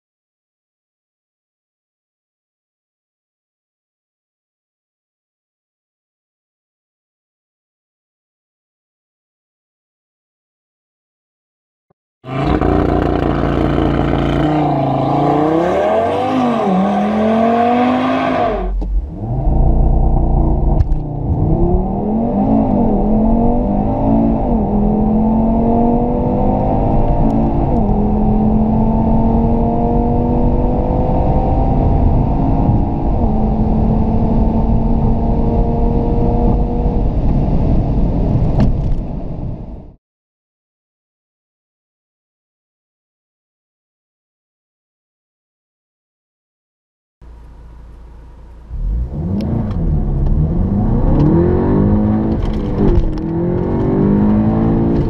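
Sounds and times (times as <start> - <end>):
car engine accelerating: 12.3 - 37.8, 47.2 - 55.0.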